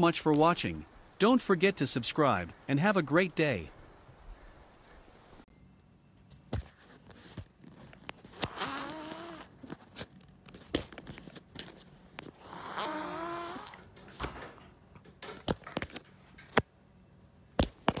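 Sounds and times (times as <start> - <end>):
cat yowling: 12.4 - 13.8.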